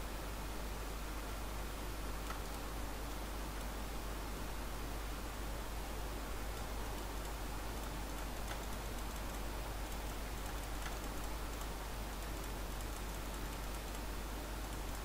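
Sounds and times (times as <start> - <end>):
microphone hiss: 0.0 - 15.0
computer mouse clicks: 2.2 - 2.6, 6.5 - 15.0.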